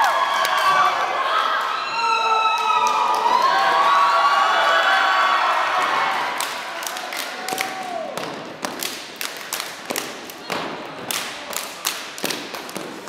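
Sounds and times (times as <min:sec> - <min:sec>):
crowd cheering: 0:00.0 - 0:08.4
dancers clapping and stomping: 0:05.8 - 0:13.0.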